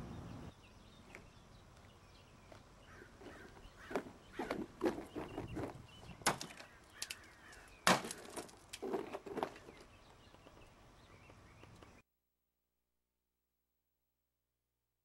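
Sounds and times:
eggs cracking on cars: 6.2 - 9.0.

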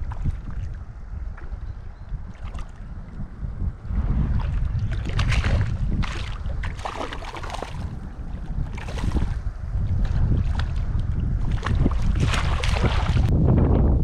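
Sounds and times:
legs splashing through stream water: 0.0 - 3.2, 4.2 - 13.3
wind buffeting microphone: 0.0 - 14.0.

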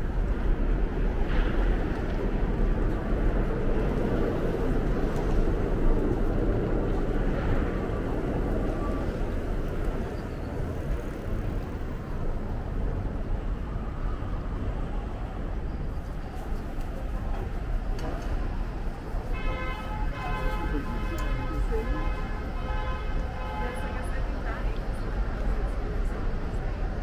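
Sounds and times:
rumble of passing traffic: 0.0 - 27.0.

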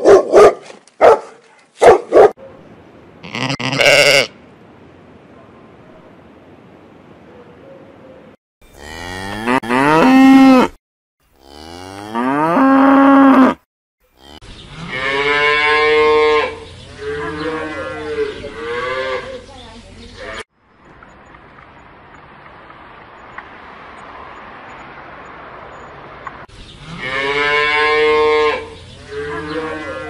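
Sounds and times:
cattle mooing: 8.8 - 10.8, 11.4 - 13.6, 26.9 - 30.0.

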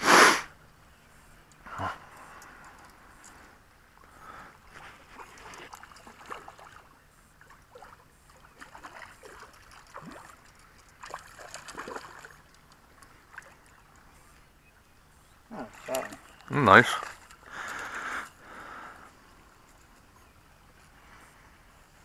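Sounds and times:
fish splashing at water surface: 8.6 - 12.7.

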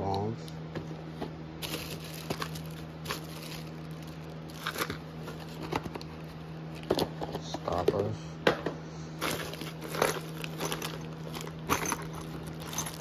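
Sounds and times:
steady low hum: 0.0 - 13.0
plastic bags crinkling: 1.6 - 7.0, 9.2 - 13.0.

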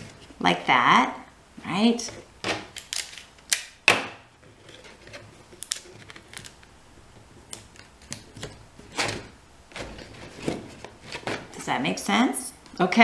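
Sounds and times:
tape rustling and tapping: 2.4 - 11.6
sticky tape tearing: 2.7 - 3.8.

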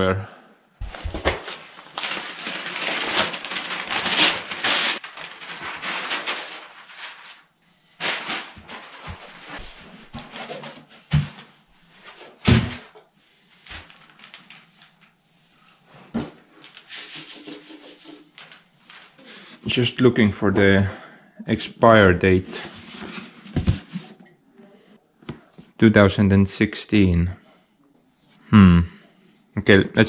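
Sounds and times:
newspaper rustling and crinkling: 0.8 - 11.3, 13.4 - 15.2, 18.3 - 19.6, 22.5 - 24.1.

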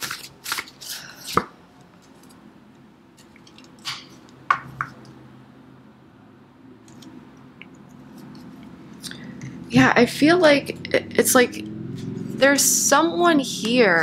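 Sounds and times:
cards shuffling: 0.0 - 2.4.

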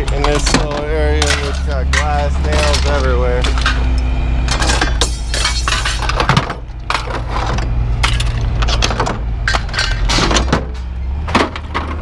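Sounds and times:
scrap metal clanking on ground: 0.0 - 12.0
steady low hum: 0.0 - 12.0.

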